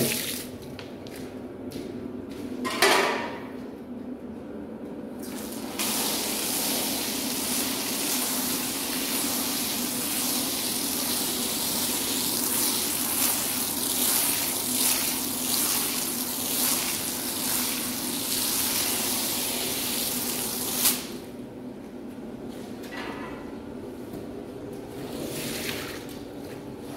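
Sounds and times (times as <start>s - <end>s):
pressure washer spraying rug: 5.6s - 21.1s.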